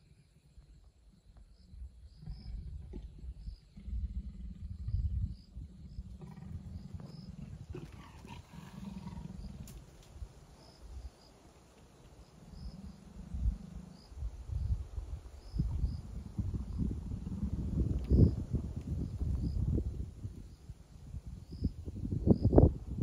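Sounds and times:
leopard growling: 2.2 - 9.9, 12.3 - 14.3, 15.6 - 19.8.

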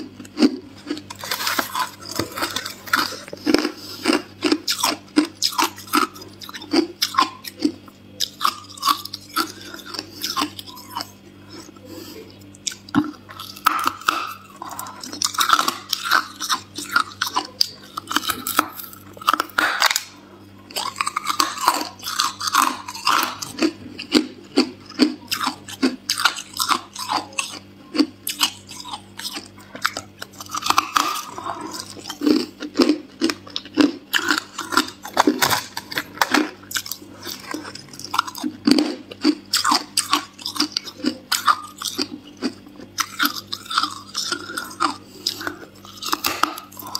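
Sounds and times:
ice cracking and crunching: 1.0 - 3.7.

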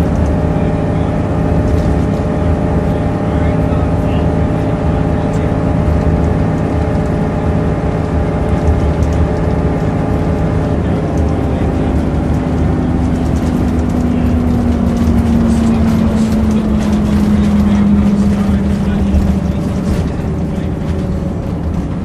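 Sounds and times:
diesel bus engine drone: 0.0 - 22.0
whine: 0.0 - 22.0
body rattles: 8.4 - 22.0.

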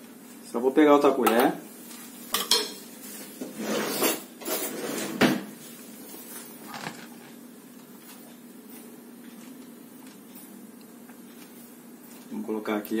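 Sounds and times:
cutlery clattering: 2.3 - 2.8
drawer shutting: 6.6 - 7.2.

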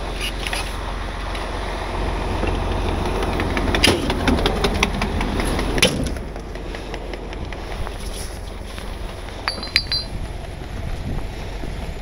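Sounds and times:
truck engine idling: 0.0 - 12.0
metal tools clanking: 9.4 - 10.2.

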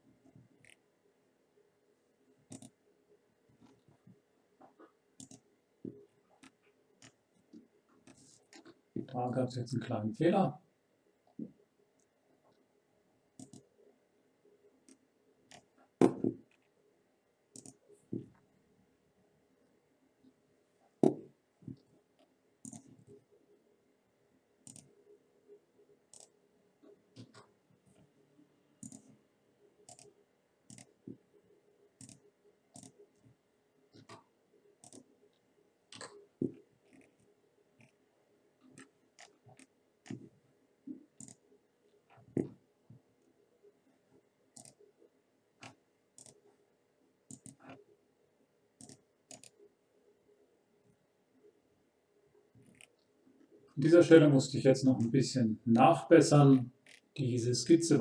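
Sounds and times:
computer mouse clicks: 2.5 - 2.8, 5.2 - 5.5, 13.4 - 13.7, 14.9 - 15.7, 17.5 - 17.8, 22.6 - 23.0, 24.6 - 24.9, 26.1 - 26.4, 28.8 - 29.2, 29.9 - 31.0, 32.0 - 33.0, 33.9 - 35.1, 35.9 - 38.0, 41.2 - 41.4, 44.5 - 44.8, 45.6 - 46.4, 47.3 - 47.8, 48.8 - 49.6, 52.6 - 53.0.

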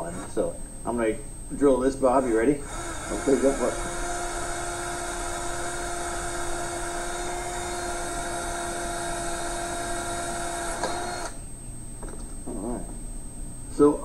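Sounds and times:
cordless drill boring metal: 2.6 - 11.4.

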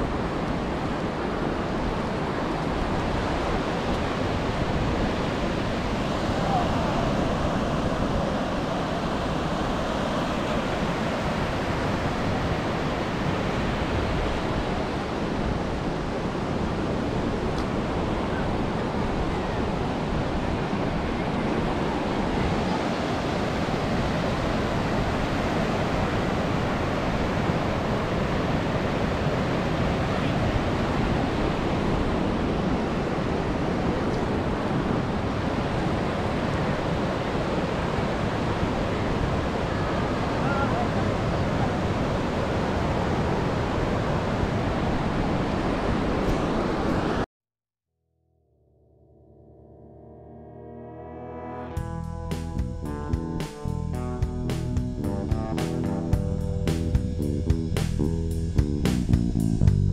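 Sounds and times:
ocean waves washing ashore: 0.0 - 47.3.

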